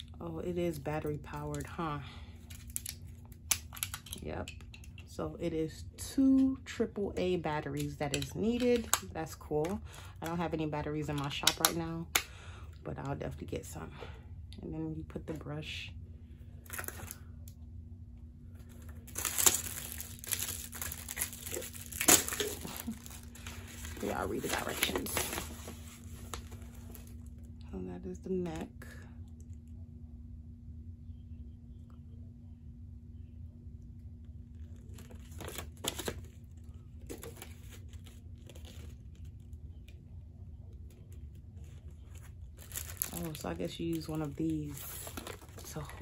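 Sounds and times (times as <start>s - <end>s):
faint steady hum: 0.0s - 46.0s
plastic packaging crinkling: 16.6s - 17.3s, 18.6s - 27.4s, 34.6s - 40.0s, 40.7s - 46.0s.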